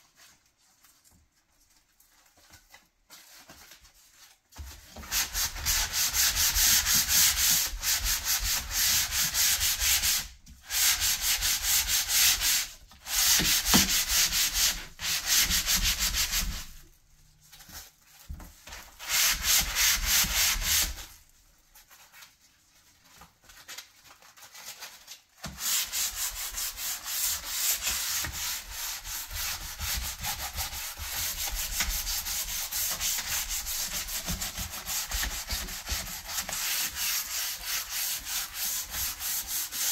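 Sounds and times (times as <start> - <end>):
sandpaper rubbing on wood: 5.1 - 16.7, 19.0 - 21.1, 25.5 - 39.9.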